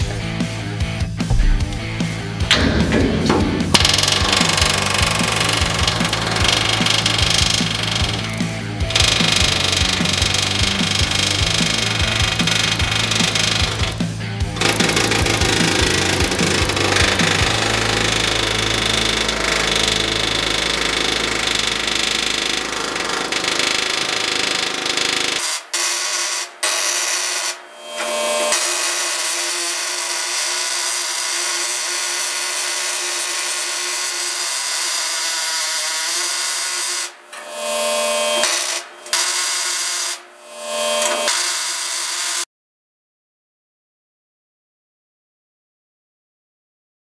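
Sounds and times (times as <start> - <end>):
heavy low rumble: 1.2 - 6.2
pneumatic tool whining on steel: 2.5 - 42.4.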